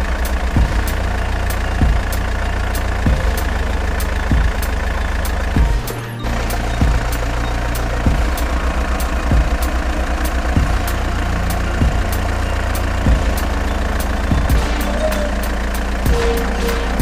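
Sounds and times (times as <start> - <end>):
low idling engine drone: 0.0 - 17.0
deep thumps: 0.6 - 0.8, 3.1 - 3.5, 4.3 - 4.7, 5.6 - 6.0, 6.8 - 7.2, 8.1 - 8.4, 9.3 - 9.6, 10.6 - 10.9, 11.8 - 12.2, 13.1 - 13.5, 14.3 - 14.8.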